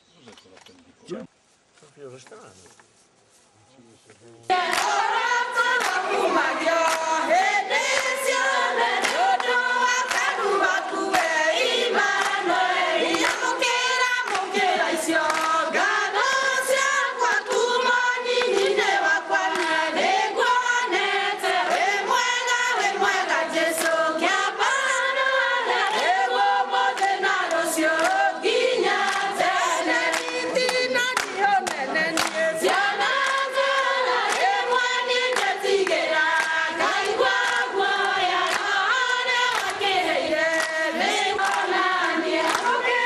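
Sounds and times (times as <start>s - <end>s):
women and children singing: 4.5s - 43.0s
hand claps: 4.6s - 16.0s, 18.3s - 18.8s, 19.4s - 19.8s, 23.7s - 24.0s, 25.8s - 43.0s.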